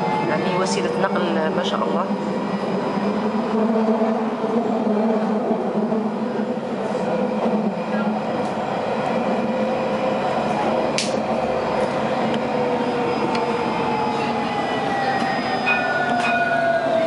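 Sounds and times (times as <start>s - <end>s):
tram rumble: 0.0s - 17.0s
sharp click: 11.0s - 11.2s.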